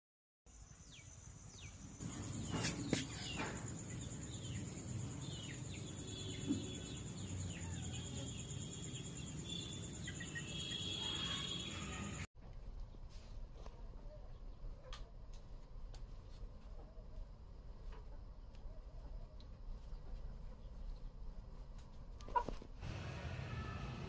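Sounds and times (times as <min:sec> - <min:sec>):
small birds chirping: 0:00.5 - 0:12.2.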